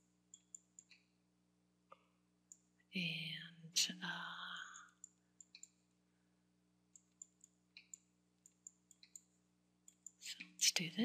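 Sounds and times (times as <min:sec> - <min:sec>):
computer mouse clicking: 0:00.0 - 0:01.1, 0:04.7 - 0:05.8, 0:06.9 - 0:10.6.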